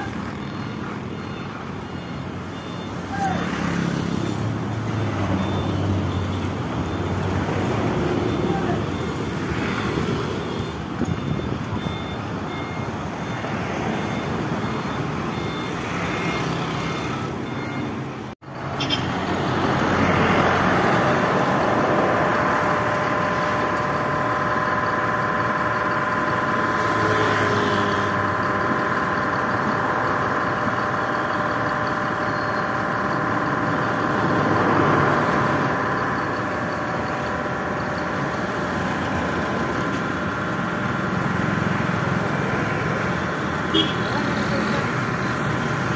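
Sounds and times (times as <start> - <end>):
road traffic: 0.0 - 45.9
vehicle engine running: 18.4 - 45.9.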